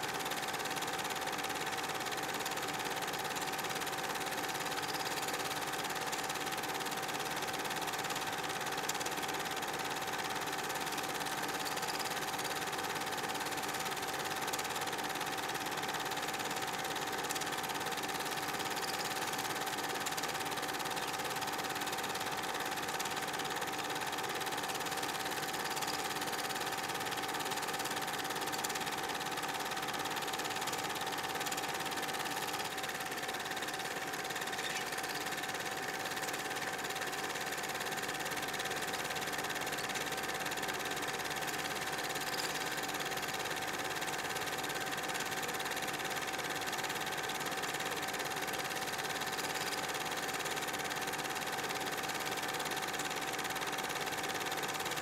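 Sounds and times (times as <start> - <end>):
film projector whirring: 0.0 - 55.0.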